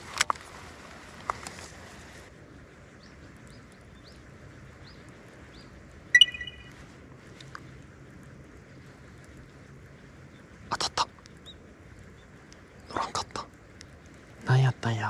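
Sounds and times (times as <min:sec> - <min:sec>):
birds chirping: 0:02.8 - 0:06.8.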